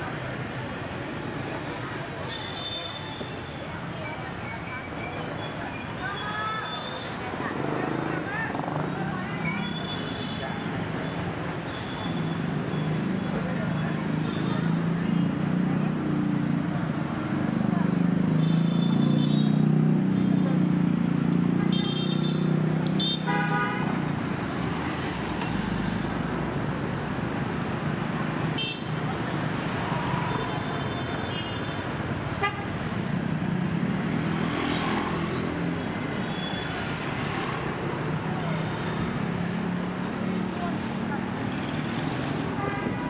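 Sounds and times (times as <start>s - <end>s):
street traffic: 0.0s - 43.0s
car horn honks: 23.0s - 23.9s.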